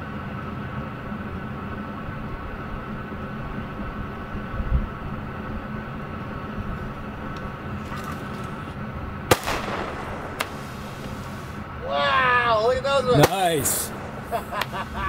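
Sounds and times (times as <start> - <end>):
steady mechanical hum: 0.0 - 15.0
firework hissing upward: 7.7 - 11.7
firework bang: 9.3 - 11.6
small pop: 10.4 - 11.2.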